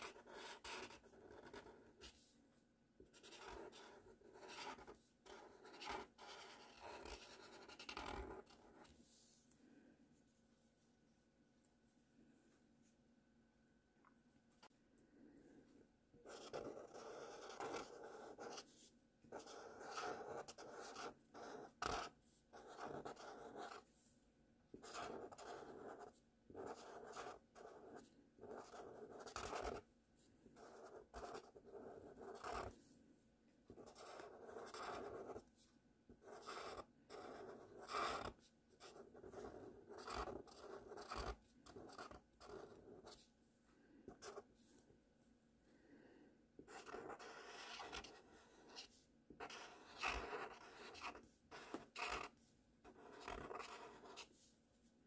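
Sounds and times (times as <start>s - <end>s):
marker pen scratching on paper: 0.0s - 2.3s, 3.0s - 9.3s, 16.2s - 23.9s, 24.7s - 29.9s, 30.5s - 32.9s, 33.7s - 43.3s, 44.1s - 44.6s, 46.6s - 54.5s.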